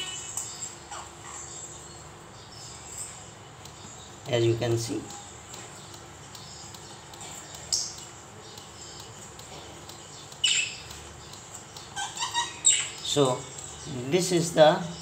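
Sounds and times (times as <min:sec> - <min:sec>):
electronic alarm chirps: 0:00.0 - 0:04.2, 0:10.0 - 0:13.9.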